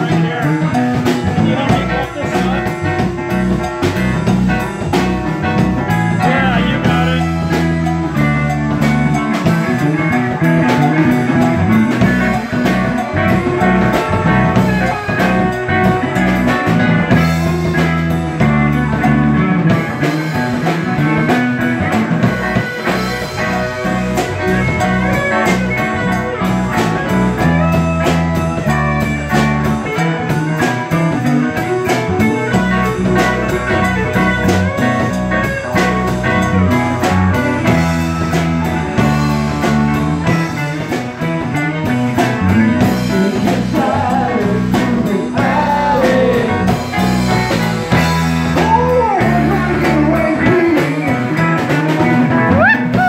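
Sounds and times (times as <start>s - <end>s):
bass guitar: 0.0s - 53.0s
drum kit beat: 0.0s - 53.0s
electric guitar: 0.0s - 53.0s
keyboard: 0.0s - 53.0s.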